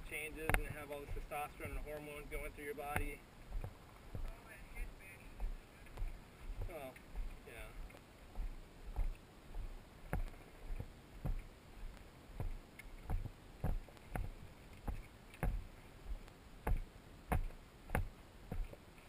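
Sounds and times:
footsteps on rocky dirt trail: 0.0s - 18.9s.

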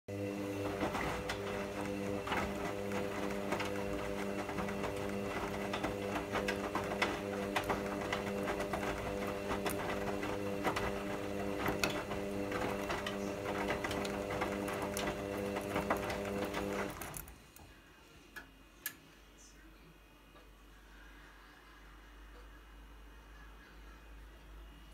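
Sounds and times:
washing machine motor humming: 0.0s - 17.8s
water and clothes splashing in drum: 0.2s - 17.1s.

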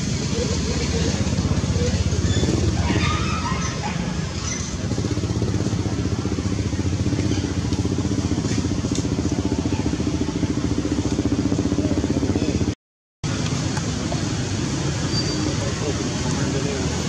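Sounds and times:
engine idling: 4.6s - 12.8s.

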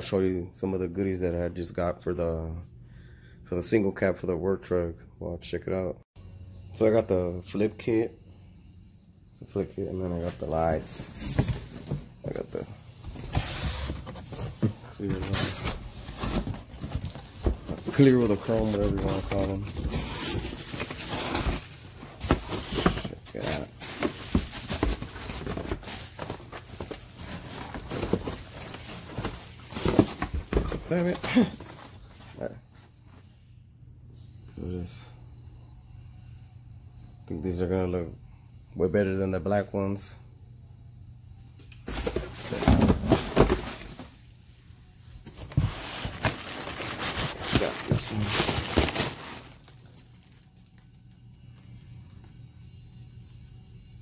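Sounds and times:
plastic wrapping rustling: 10.2s - 32.5s, 41.9s - 44.3s, 45.2s - 51.1s
bubble wrap crinkling: 45.4s - 51.1s.

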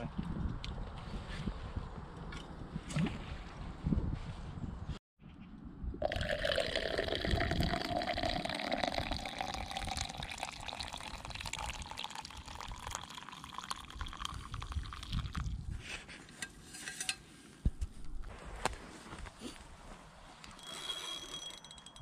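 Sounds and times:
liquid pouring into mug: 6.0s - 15.5s.

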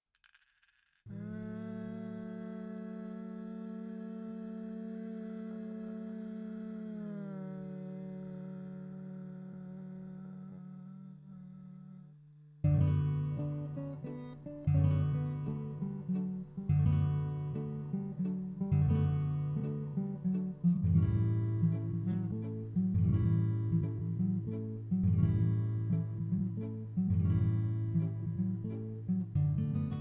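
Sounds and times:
acoustic guitar strumming: 12.6s - 30.0s.

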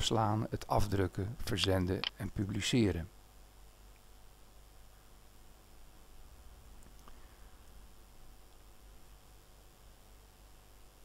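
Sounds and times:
low hum with light hiss: 0.0s - 11.0s.

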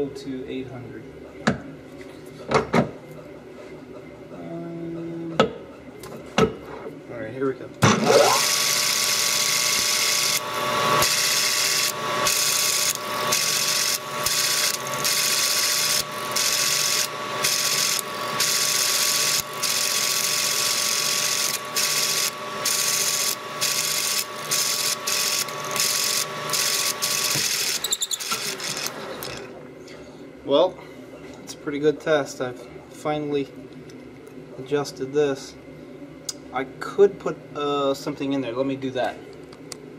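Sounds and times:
lathe whirring with high whine: 7.8s - 29.6s.

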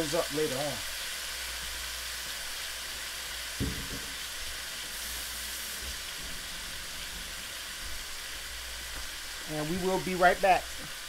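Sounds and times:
meat sizzling in a frying pan: 0.0s - 11.0s
low knock: 3.6s - 4.2s.

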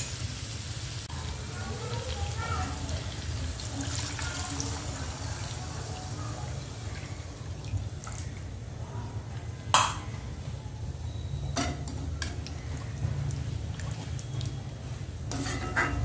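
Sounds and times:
ladle clinking against metal pot: 15.3s - 16.0s.

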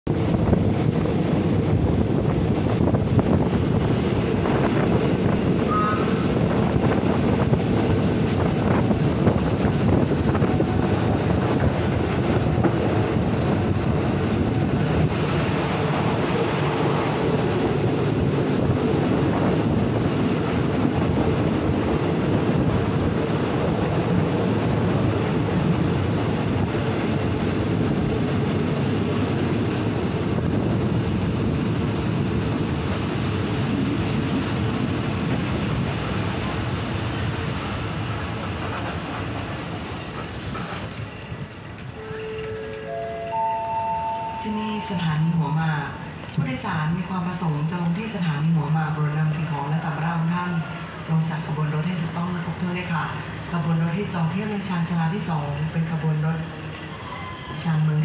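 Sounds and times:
wind buffeting microphone: 0.1s - 39.2s
train wheels rumbling on rails: 0.1s - 43.6s, 45.5s - 58.0s.

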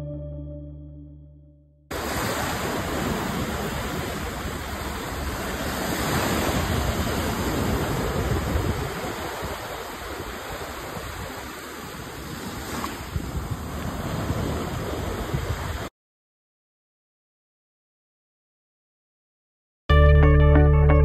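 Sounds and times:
foam washing over sand: 1.9s - 15.9s
small waves breaking: 1.9s - 15.9s.

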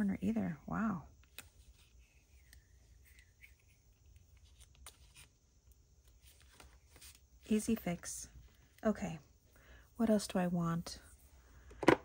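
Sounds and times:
paper rustling: 1.2s - 7.6s.

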